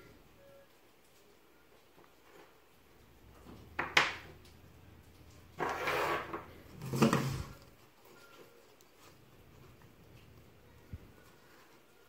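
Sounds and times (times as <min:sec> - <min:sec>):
wood pieces scraping and rubbing: 0:05.3 - 0:07.8.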